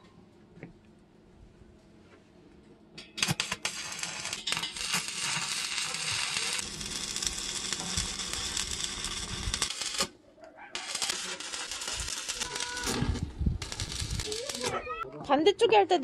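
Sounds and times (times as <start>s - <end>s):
welding arc crackling sizzle: 3.2s - 10.2s, 10.8s - 15.0s
welding arc cracks: 3.2s - 10.2s, 10.8s - 14.9s.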